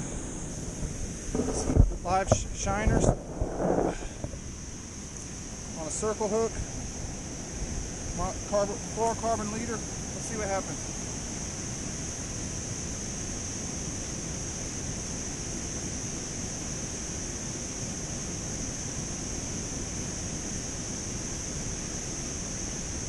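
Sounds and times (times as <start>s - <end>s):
wind noise on microphone: 0.0s - 5.8s
high-pitched hiss: 0.0s - 23.0s.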